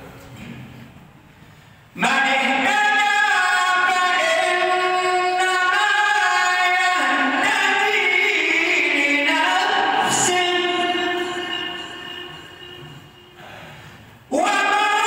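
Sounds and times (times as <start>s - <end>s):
man chanting melodic recitation: 2.0s - 13.5s.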